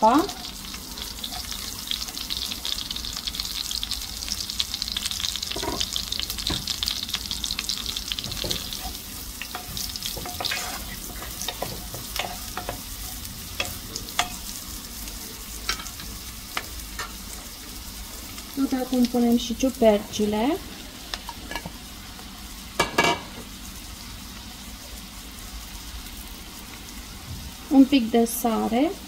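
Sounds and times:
onion sizzling in butter: 0.0 - 29.0
spatula scraping and clicking on pan: 8.2 - 14.5, 15.6 - 17.2.

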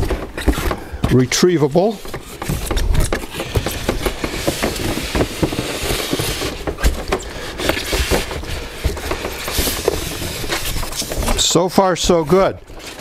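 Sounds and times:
styrofoam and cardboard scraping: 0.0 - 13.0
irregular knocks and clicks: 2.0 - 11.4.

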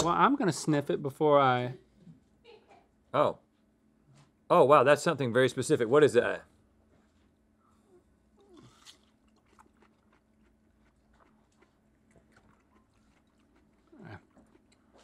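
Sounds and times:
chewing juicy fruit: 7.7 - 15.0.

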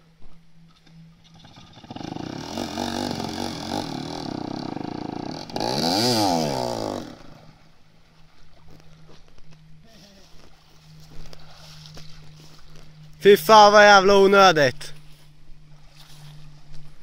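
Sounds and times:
motorcycle engine revving: 1.2 - 7.7.

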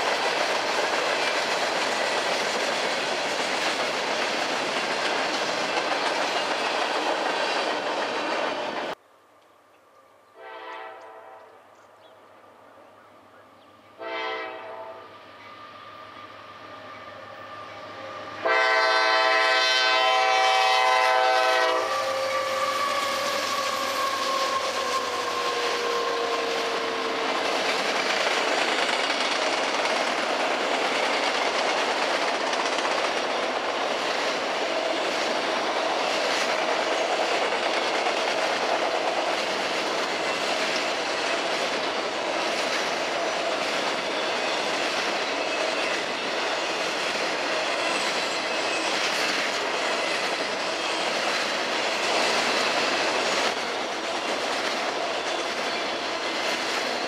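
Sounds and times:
train wheels rumbling on rails: 0.0 - 9.0, 13.6 - 57.0
locomotive horn blast: 10.4 - 11.6, 14.0 - 15.6, 18.0 - 23.4.

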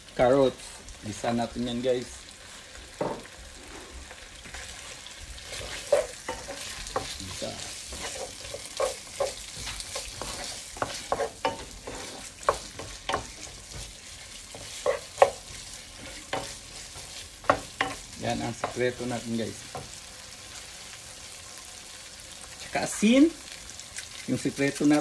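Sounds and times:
vegetables sizzling in oil: 0.0 - 25.0
spatula knocking and scraping pan: 5.4 - 20.0.

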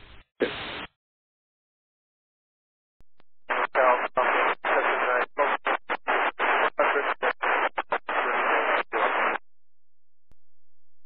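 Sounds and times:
radio voice broken by static: 0.0 - 0.9, 3.4 - 9.4.

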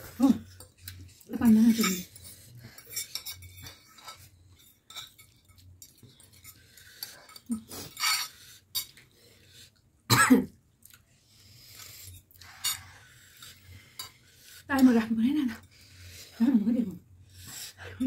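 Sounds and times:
forks scraping ceramic plates: 0.6 - 9.0
person coughing: 10.1 - 10.5.

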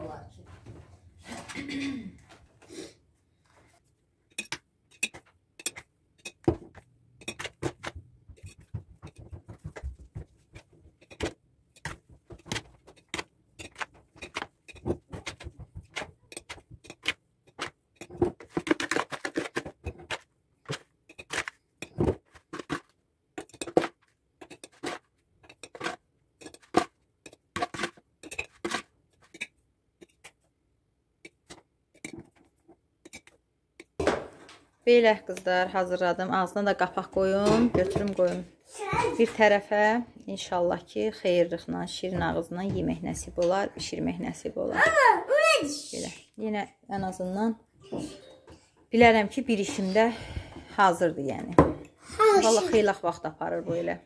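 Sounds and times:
spoon scraping: 4.3 - 9.7, 10.4 - 30.4, 31.2 - 33.9.

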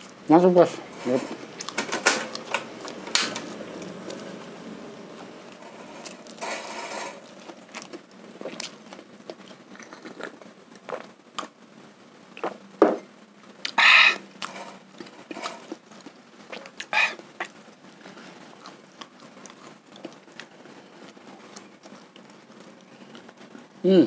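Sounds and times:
person chewing and lip-smacking: 7.6 - 11.6.

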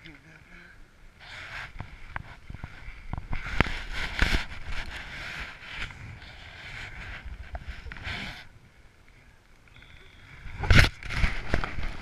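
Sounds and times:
fabric rustling on microphone: 1.2 - 8.6, 10.4 - 12.0.

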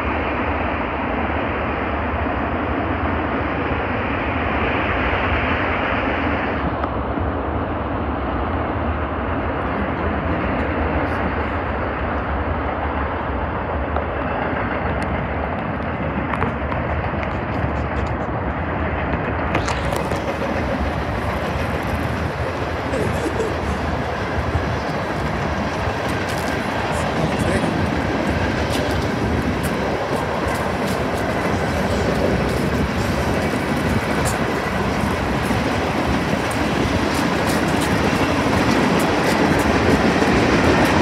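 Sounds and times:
steel wheels on rails: 13.8 - 41.0.

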